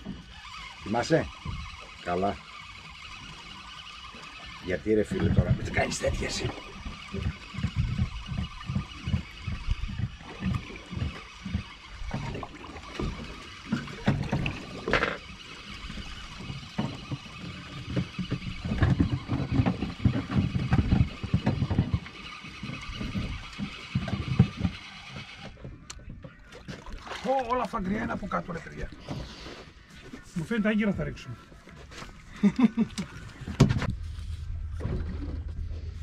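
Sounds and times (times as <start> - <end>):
water slapping against hull: 0.0 - 36.0.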